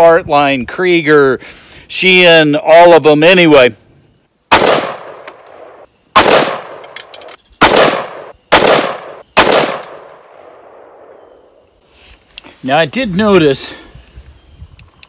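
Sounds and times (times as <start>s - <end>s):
rifle gunshots with echo: 4.5s - 7.0s, 7.6s - 11.3s.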